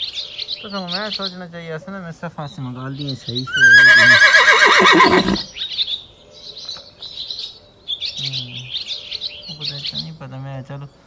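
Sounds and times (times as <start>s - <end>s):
small birds chirping: 0.0s - 11.0s
horse whinnying: 3.5s - 5.5s.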